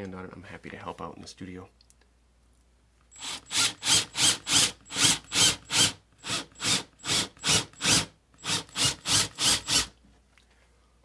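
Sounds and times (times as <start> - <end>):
drill boring into wood: 3.1 - 9.9.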